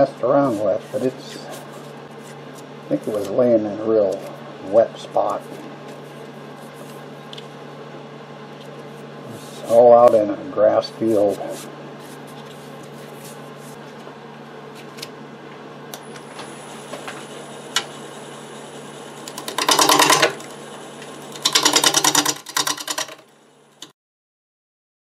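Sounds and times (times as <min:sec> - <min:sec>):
wood lathe motor hum: 0:16.0 - 0:23.9
gouge cutting spinning wood: 0:16.4 - 0:23.2
rapid clicking of lathe tool: 0:19.2 - 0:23.2.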